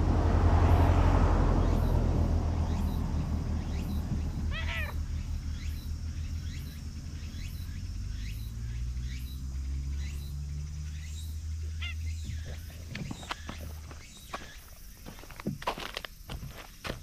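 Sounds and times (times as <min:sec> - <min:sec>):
low steady rumble: 0:00.0 - 0:14.0
higher bird call: 0:03.7 - 0:05.8, 0:11.7 - 0:12.6.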